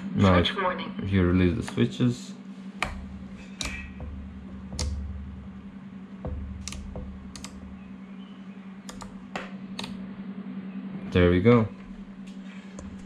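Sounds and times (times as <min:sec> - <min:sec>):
low hum: 0:00.0 - 0:13.0
toggle switch clicks: 0:02.8 - 0:05.1, 0:06.3 - 0:07.8, 0:08.8 - 0:10.0.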